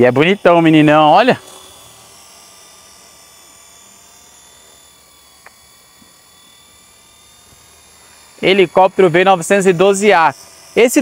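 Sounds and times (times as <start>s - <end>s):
electric motors whining: 0.0s - 11.0s
small click: 5.4s - 6.1s.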